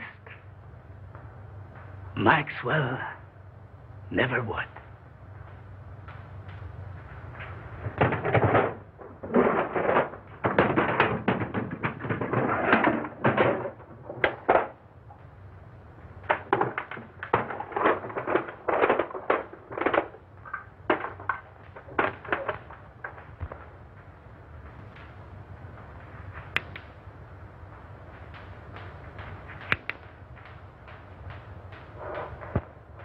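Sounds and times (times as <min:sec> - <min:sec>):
objects rustling and knocking: 0:04.8 - 0:33.0.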